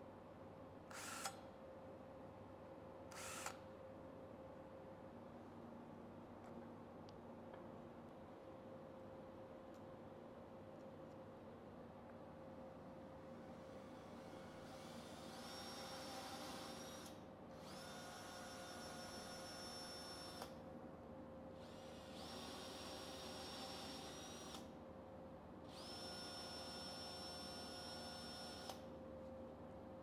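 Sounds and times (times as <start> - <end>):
cordless drill motor whining: 3.1 - 3.6, 25.7 - 28.8.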